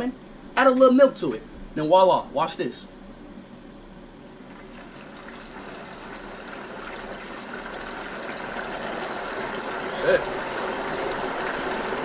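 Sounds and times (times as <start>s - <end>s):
oil sizzling and bubbling: 3.8s - 12.0s
milk pouring: 4.4s - 12.0s.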